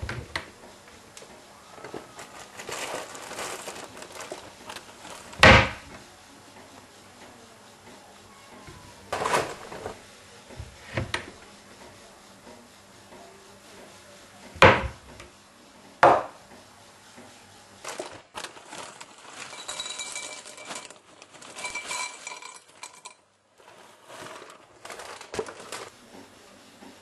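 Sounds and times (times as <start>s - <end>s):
bowl clinking and rattling on worktop: 1.8s - 5.7s, 9.1s - 10.0s, 17.8s - 25.9s.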